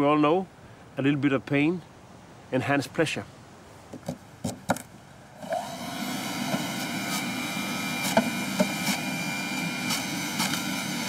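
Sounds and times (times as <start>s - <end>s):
electric juicer motor whining: 5.4s - 11.0s
sharp knocks in juicer chute: 8.0s - 9.1s, 9.8s - 10.8s.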